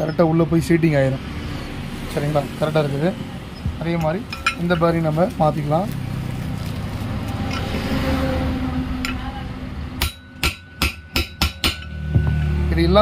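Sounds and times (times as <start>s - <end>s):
hammer strikes on metal: 10.0s - 12.7s.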